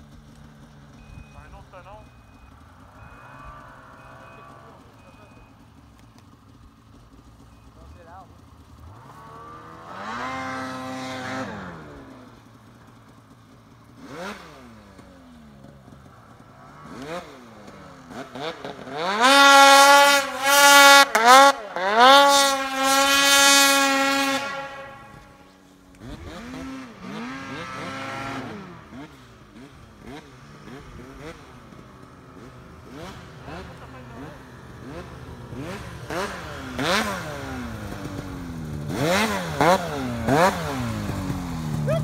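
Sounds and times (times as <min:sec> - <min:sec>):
snowmobile engine revving: 0:00.0 - 0:42.0.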